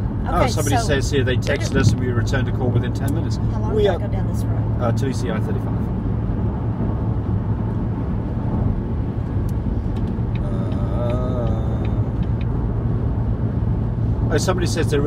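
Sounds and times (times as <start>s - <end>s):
road and engine rumble in car cabin: 0.0s - 15.0s.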